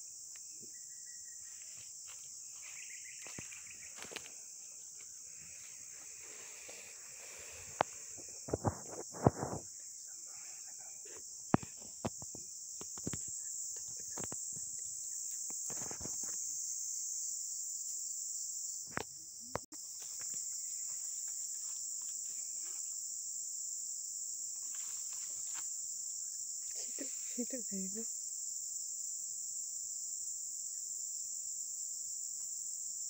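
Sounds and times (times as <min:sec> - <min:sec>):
insects buzzing chorus: 0:00.0 - 0:33.0.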